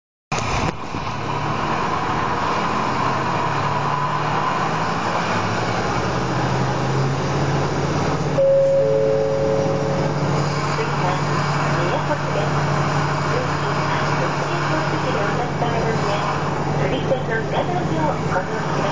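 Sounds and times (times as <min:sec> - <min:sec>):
diesel engine hum: 0:00.3 - 0:18.9
wheels rumbling on rails: 0:00.3 - 0:18.9
two-note tone: 0:08.4 - 0:10.3.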